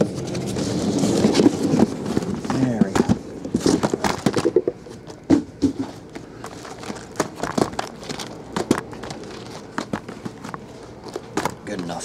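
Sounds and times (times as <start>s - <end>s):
plastic wrap rustling: 5.7s - 11.8s.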